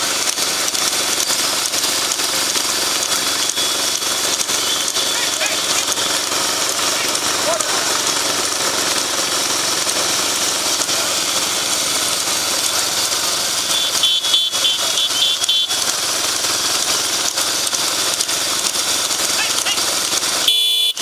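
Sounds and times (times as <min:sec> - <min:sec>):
steady rushing noise: 0:00.0 - 0:14.9
vehicle engines running: 0:00.0 - 0:21.0
high pulsing beeps: 0:03.4 - 0:07.3.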